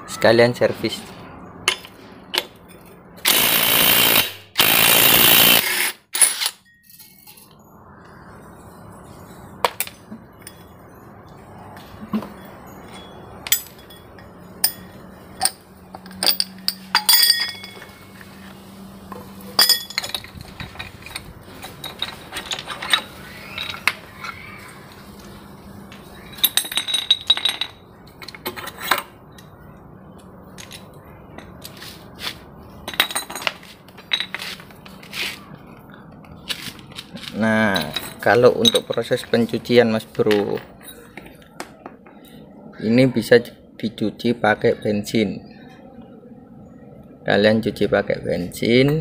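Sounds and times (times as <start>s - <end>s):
metal parts clinking: 1.6s - 7.6s, 9.6s - 18.2s, 19.1s - 24.4s, 26.2s - 29.5s, 30.5s - 31.8s, 32.8s - 35.2s, 36.3s - 41.4s
compressed-air tool bursts: 3.3s - 6.6s.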